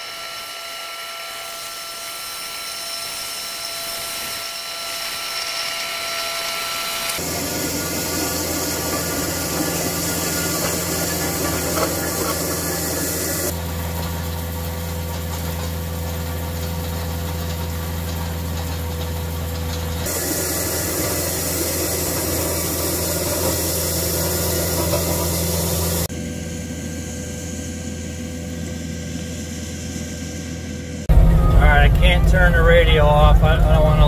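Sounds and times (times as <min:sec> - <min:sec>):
diesel engine running under load: 0:07.1 - 0:34.0
rake drum grinding through gravel: 0:07.2 - 0:26.1.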